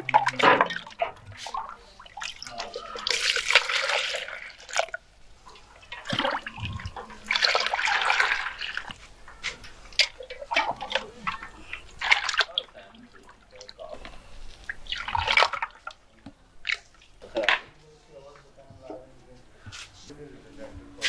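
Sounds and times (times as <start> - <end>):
splashes and cup knocks: 0.0 - 5.0, 5.9 - 12.8
juice pouring into jug: 2.1 - 5.0, 5.9 - 9.0.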